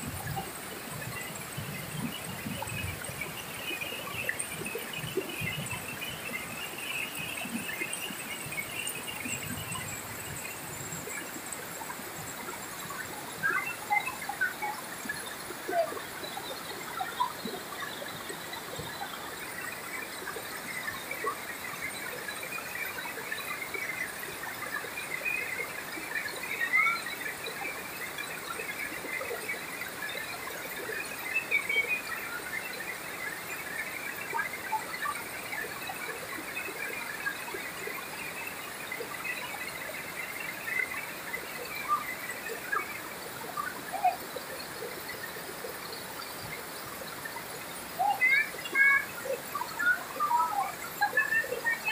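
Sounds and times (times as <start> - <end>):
river rapids rushing over rocks: 42.4 - 50.2.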